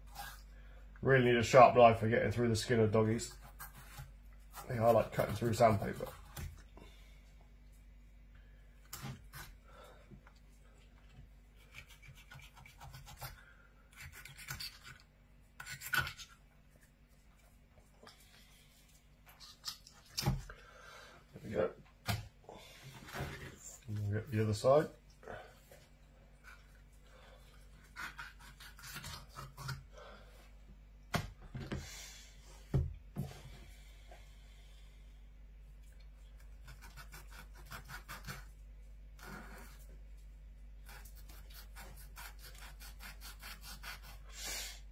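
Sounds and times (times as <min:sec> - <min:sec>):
knife scraping rough fish skin: 0:00.0 - 0:00.5, 0:11.6 - 0:16.4, 0:27.6 - 0:29.9, 0:36.4 - 0:38.5, 0:40.8 - 0:44.4.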